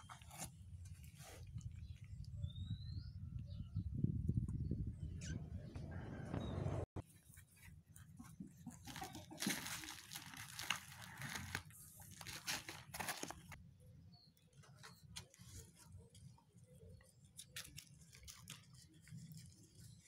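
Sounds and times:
plastic-coated carton crinkling: 0:08.7 - 0:13.6.

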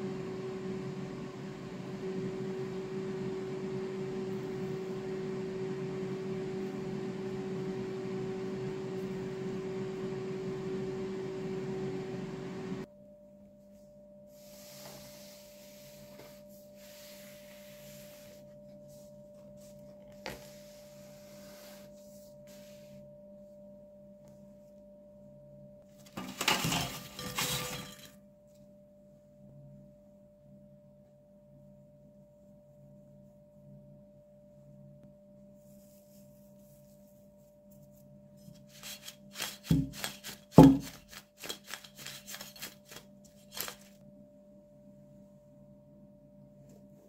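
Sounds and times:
appliance humming: 0:00.0 - 0:12.9
crockery clattering: 0:26.2 - 0:28.2.

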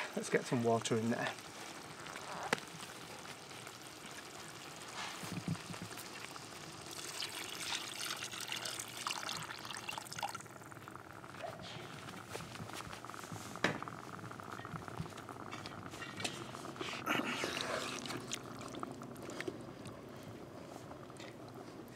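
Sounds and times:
water pouring into pot: 0:00.2 - 0:11.2, 0:13.9 - 0:20.1.

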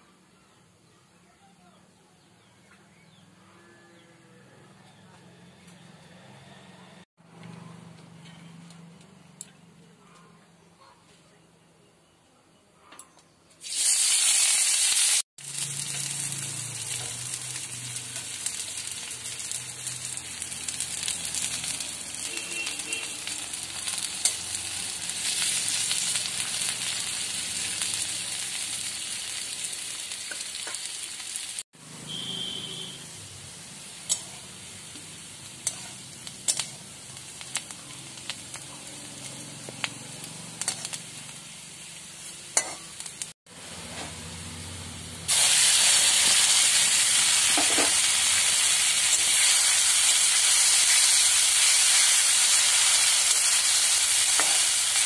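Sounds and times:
onions sizzling in hot oil: 0:13.6 - 0:55.0.

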